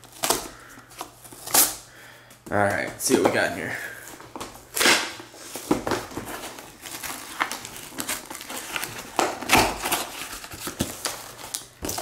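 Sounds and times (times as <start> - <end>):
cardboard tearing: 0.0 - 1.8, 4.7 - 12.0
cardboard rustling and crinkling: 2.7 - 12.0.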